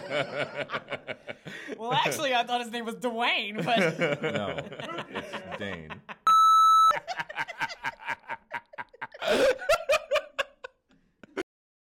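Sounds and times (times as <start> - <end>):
man and woman laughing: 0.0 - 2.1, 3.6 - 6.3, 6.9 - 11.4
loud electronic beep: 6.3 - 7.0.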